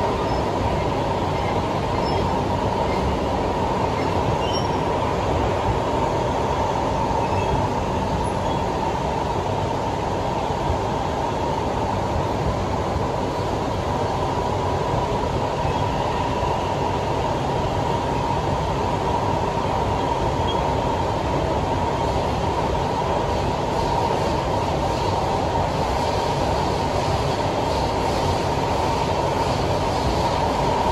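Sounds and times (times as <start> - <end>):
train wheels rumbling: 0.0 - 30.9.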